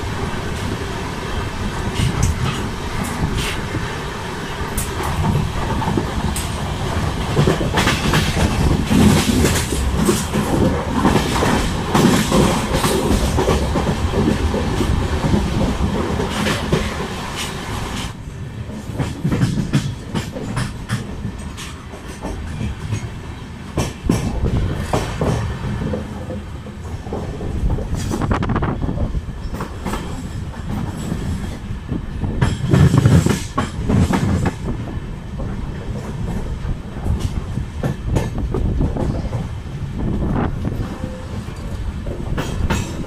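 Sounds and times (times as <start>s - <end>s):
train wheels rumbling on rail: 0.0s - 43.0s
wheels clattering over rail joints: 4.7s - 18.2s.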